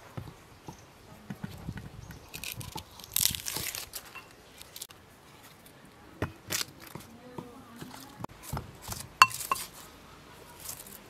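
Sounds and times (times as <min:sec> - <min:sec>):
onion skin crackling and tearing: 0:02.3 - 0:04.9, 0:06.5 - 0:07.0.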